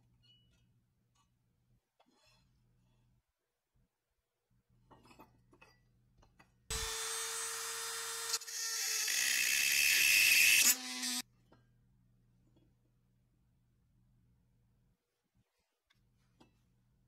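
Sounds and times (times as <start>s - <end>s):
rotary tool grinding steel: 6.7s - 11.2s.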